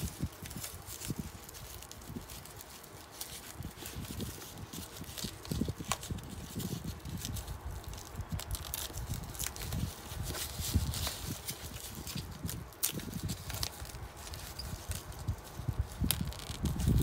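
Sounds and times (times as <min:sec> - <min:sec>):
plastic wrapping rustling: 0:00.0 - 0:17.0.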